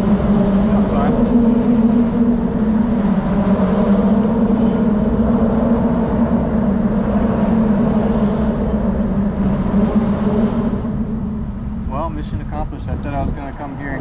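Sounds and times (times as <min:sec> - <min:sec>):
tyres humming on steel-grid bridge: 0:00.0 - 0:14.0.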